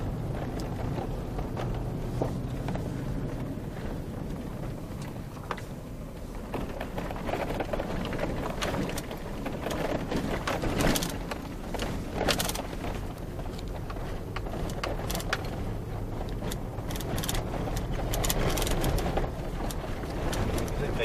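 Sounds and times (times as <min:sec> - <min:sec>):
vehicle driving on dirt road: 0:00.0 - 0:21.0
knocks and rattles: 0:06.4 - 0:21.0.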